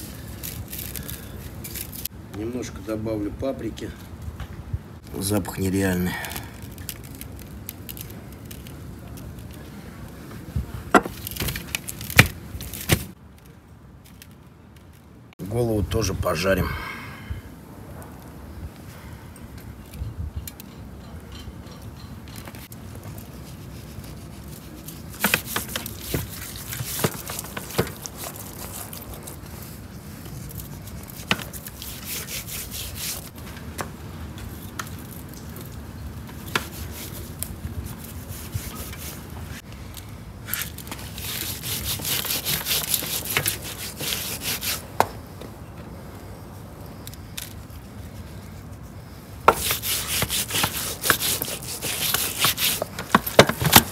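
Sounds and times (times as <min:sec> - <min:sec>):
hands rubbing fish: 0:49.5 - 0:53.9.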